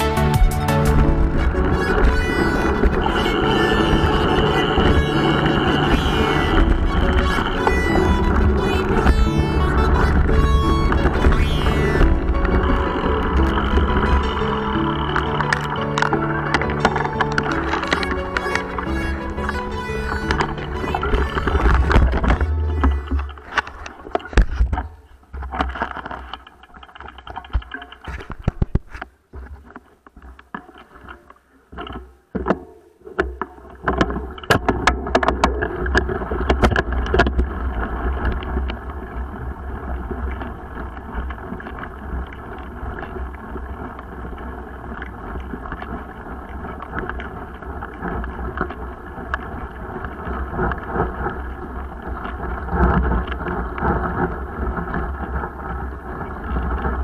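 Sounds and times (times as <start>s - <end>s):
tyres rolling rumble: 0.0s - 25.3s
wind on microphone: 0.0s - 25.7s, 34.6s - 57.0s.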